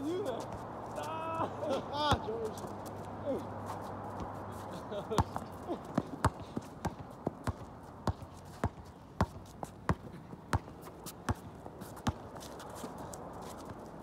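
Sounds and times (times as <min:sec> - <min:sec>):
basketball bouncing on hard court: 0:05.2 - 0:12.2.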